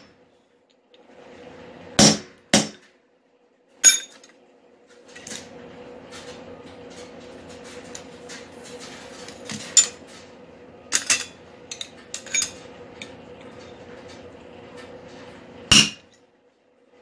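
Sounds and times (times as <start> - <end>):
steady hum: 0.0 - 17.0
metal clinking against metal: 3.8 - 4.4, 10.9 - 13.1.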